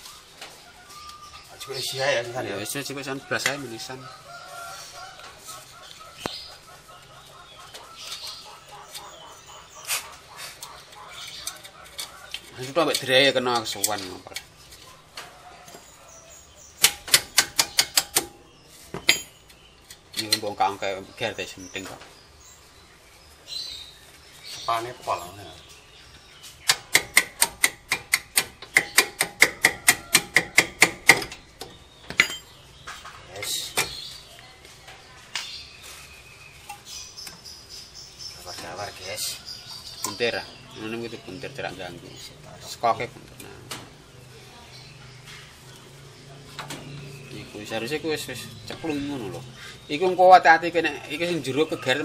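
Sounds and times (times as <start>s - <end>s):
chickens clucking: 0.0s - 16.8s.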